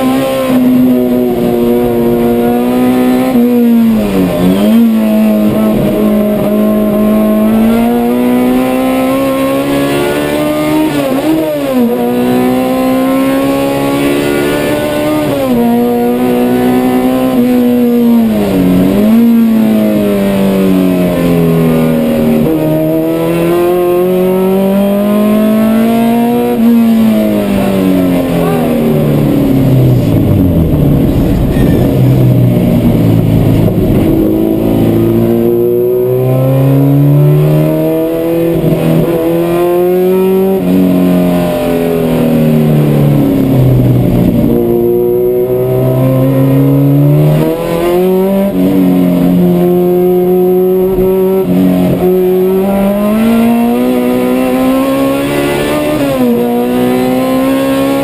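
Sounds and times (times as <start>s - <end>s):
car engine revving hard: 0.0s - 58.0s.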